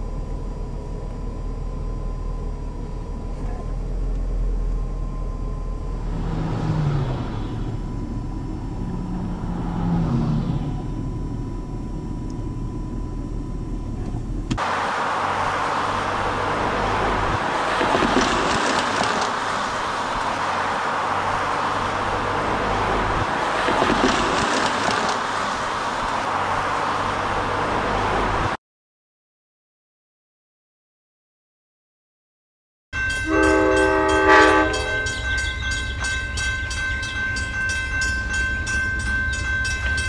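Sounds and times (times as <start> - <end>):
diesel locomotive idling: 0.0 - 28.2
distant diesel train engines: 0.0 - 28.6, 33.0 - 40.0.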